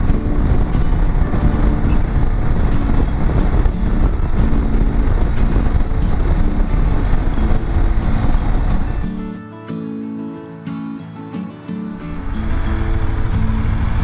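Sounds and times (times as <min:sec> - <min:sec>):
motorcycle engine: 0:00.0 - 0:09.3, 0:12.0 - 0:14.0
wind noise: 0:00.0 - 0:09.4, 0:11.9 - 0:14.0
faint background music: 0:00.0 - 0:14.0.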